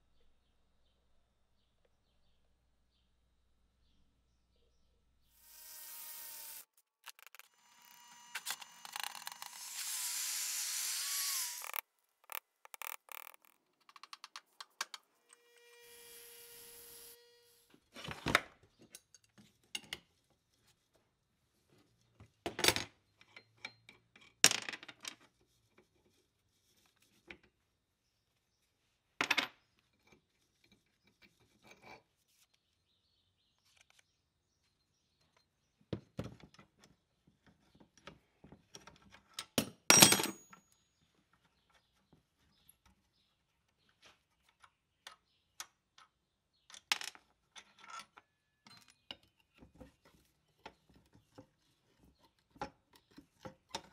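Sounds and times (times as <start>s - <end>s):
small clicks: 6.4s - 10.0s, 11.3s - 15.4s.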